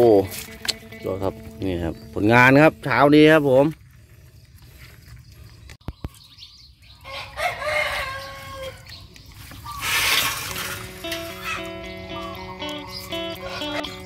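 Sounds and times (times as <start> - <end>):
background music: 0.0 - 3.0, 10.6 - 14.0
rooster crowing: 7.0 - 8.9.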